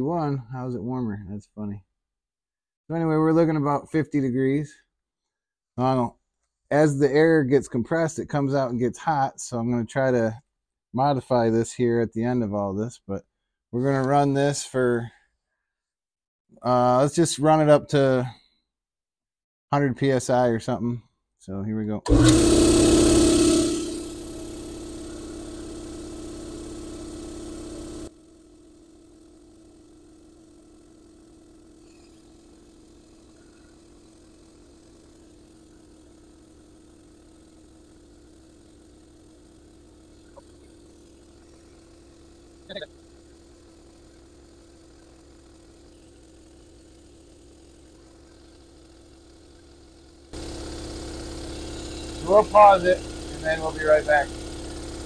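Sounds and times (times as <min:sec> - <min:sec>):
air compressor pump running: 0:22.1 - 0:55.0.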